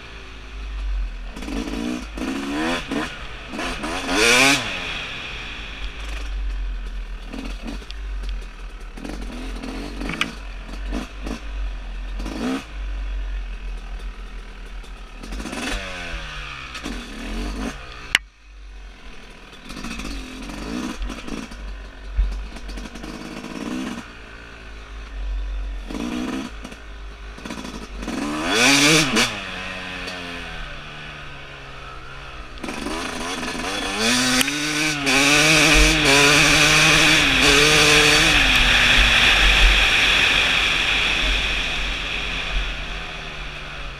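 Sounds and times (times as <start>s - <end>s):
two-stroke motorcycle engine revving: 0.0s - 43.9s
sharp click: 10.0s - 10.4s, 34.3s - 34.6s.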